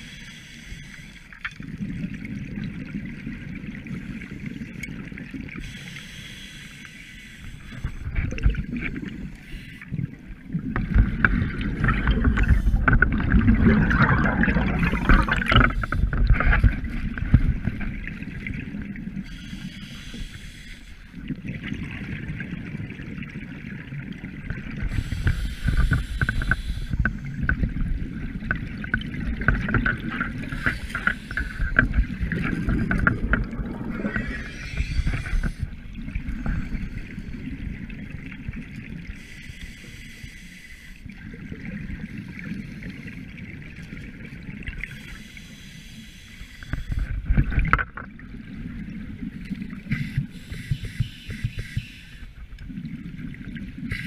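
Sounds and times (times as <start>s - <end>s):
low water rumble: 7.4s - 40.0s, 41.0s - 45.3s, 46.3s - 54.0s
crackling exhaled bubbles: 7.6s - 19.3s, 21.2s - 39.4s.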